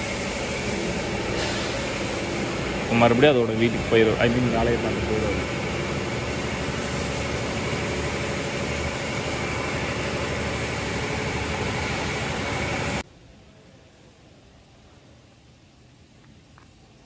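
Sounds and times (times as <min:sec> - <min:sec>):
car wash machine running: 0:00.0 - 0:13.0.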